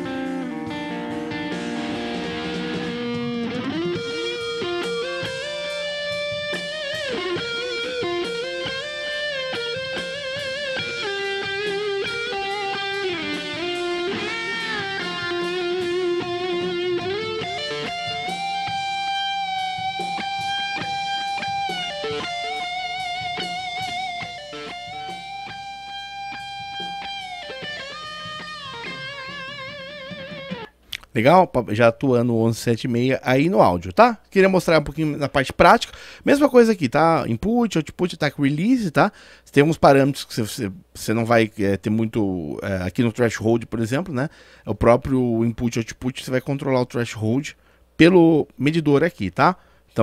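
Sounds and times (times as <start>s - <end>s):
electric guitar lead with bent notes: 0.0s - 30.8s.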